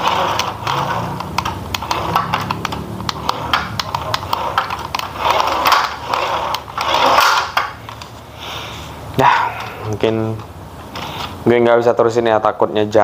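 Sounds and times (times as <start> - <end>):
toy truck motor clicking rattle: 0.0 - 8.1.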